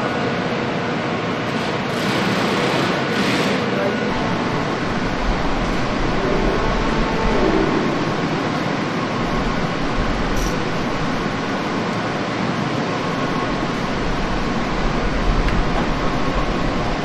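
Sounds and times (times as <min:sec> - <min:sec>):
machinery rumble and hiss: 0:00.0 - 0:17.0.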